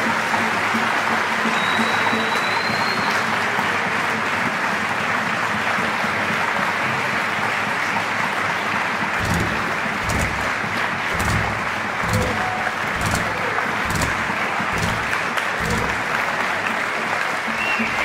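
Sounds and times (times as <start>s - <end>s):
audience applauding: 0.0s - 18.0s
low thuds: 9.2s - 16.2s.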